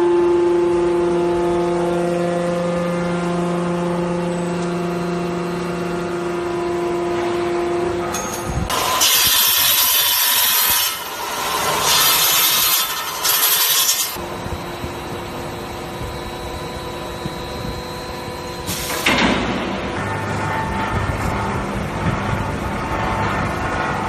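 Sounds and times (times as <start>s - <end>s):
machine hum with faint whine: 0.0s - 24.0s
hydraulic hissing bursts: 18.7s - 19.1s.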